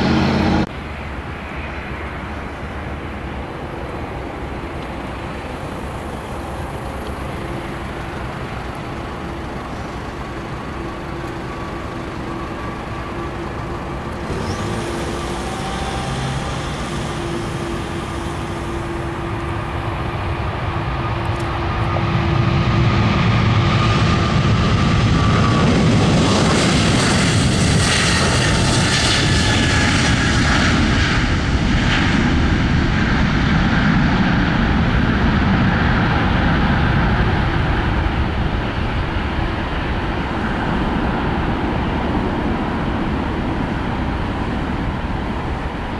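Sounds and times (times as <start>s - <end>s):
jet engines rumbling: 0.0s - 45.9s
faint falling whine: 4.8s - 21.8s.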